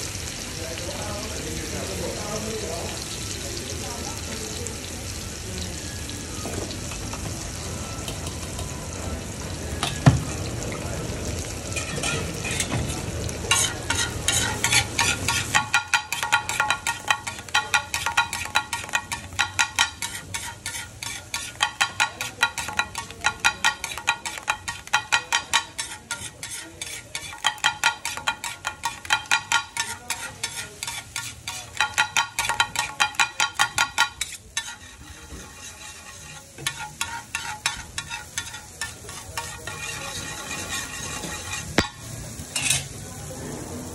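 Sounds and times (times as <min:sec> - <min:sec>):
food sizzling on a griddle: 0:00.0 - 0:43.9
spatulas striking a griddle: 0:11.8 - 0:42.9.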